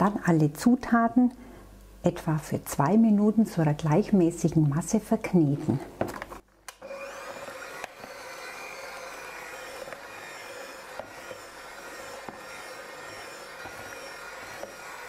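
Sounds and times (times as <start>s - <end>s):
electric hand mixer whining: 6.7s - 15.0s.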